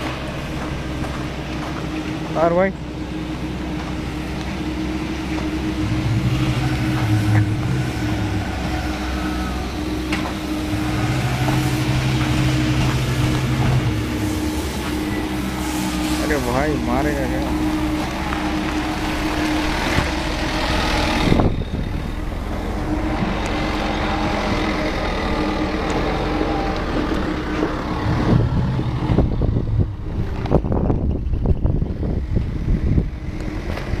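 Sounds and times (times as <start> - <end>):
forklift engine running: 0.0 - 34.0
sharp knocks and rumbles: 10.0 - 15.5.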